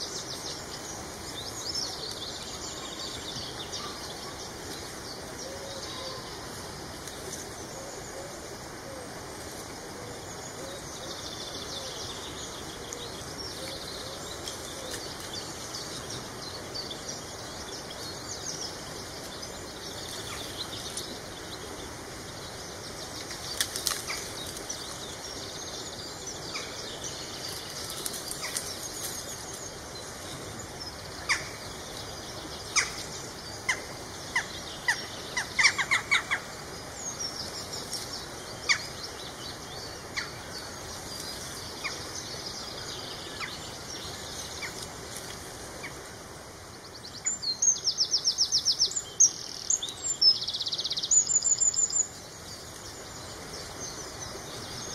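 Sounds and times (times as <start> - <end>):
songbirds calling: 0.0 - 54.9
dry reed stems crackling: 23.3 - 24.7, 27.5 - 29.3.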